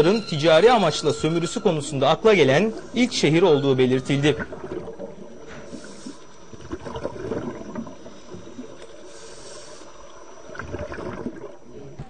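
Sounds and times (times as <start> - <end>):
underwater bubbling and crackling: 2.2 - 12.0
diver breathing through regulator: 5.4 - 6.6, 8.0 - 10.3.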